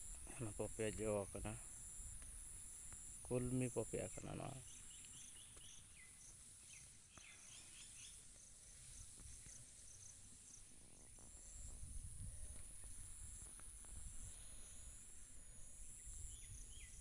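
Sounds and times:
insects chirring: 0.0s - 17.0s
bird chirps: 4.0s - 8.4s, 15.7s - 17.0s.

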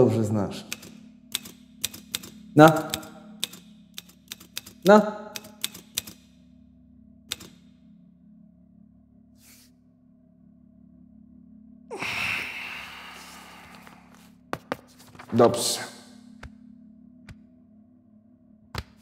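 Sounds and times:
low steady hum: 0.0s - 19.0s
typewriter key clicks: 0.7s - 6.3s, 7.3s - 7.7s.

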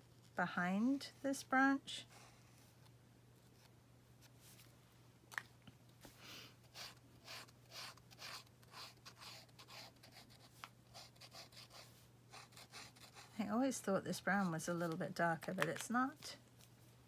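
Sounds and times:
marker scratching on paper: 6.7s - 13.4s.

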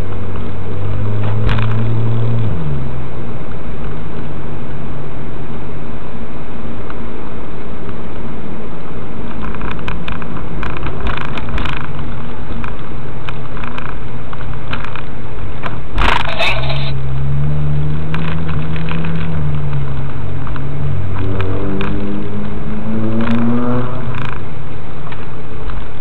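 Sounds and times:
car engine running: 0.0s - 26.0s
road noise: 0.0s - 26.0s
small clicks and rattles: 9.3s - 16.6s, 18.1s - 22.1s.

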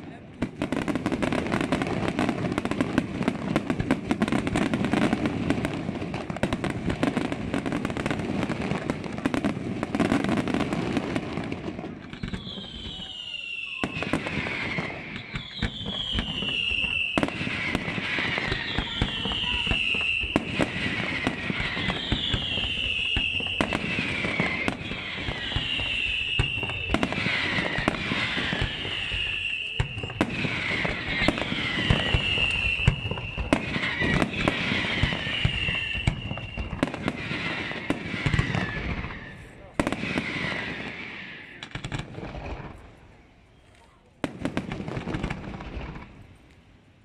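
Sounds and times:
fireworks bangs and pops: 0.0s - 46.7s
falling whistling tones: 12.1s - 39.5s
firework hissing fizz: 17.4s - 39.5s.

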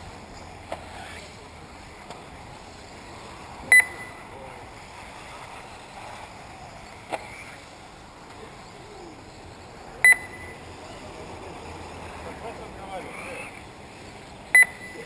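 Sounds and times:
distant rc cars humming: 0.0s - 15.0s
high electronic beep: 3.7s - 4.2s, 10.0s - 10.7s, 14.5s - 15.0s.

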